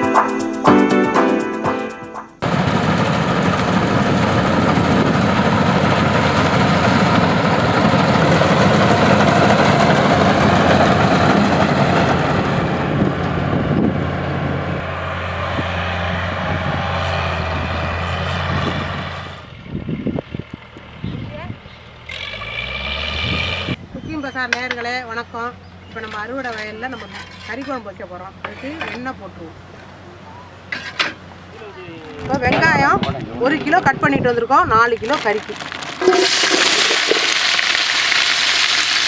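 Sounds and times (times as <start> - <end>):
combine harvester engine drone: 2.3 - 23.8.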